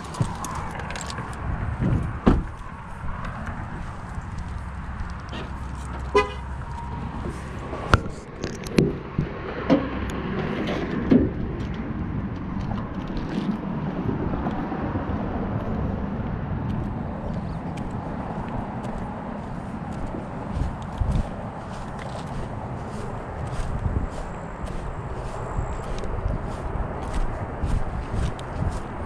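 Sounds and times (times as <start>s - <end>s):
low outdoor rumble: 0.0s - 29.0s
knocks and thumps: 1.8s - 2.6s
car horn toot: 5.3s - 6.5s.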